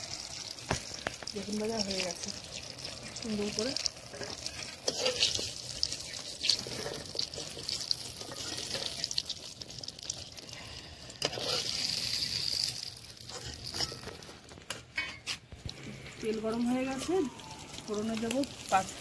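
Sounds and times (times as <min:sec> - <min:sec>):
crackling sizzle of frying: 0:00.0 - 0:19.0
metal spatula scraping a wok: 0:04.0 - 0:09.2, 0:11.2 - 0:17.2.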